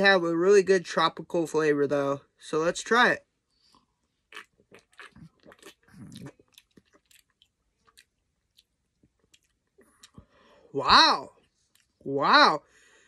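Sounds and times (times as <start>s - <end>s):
person gulping a drink: 4.3s - 10.3s.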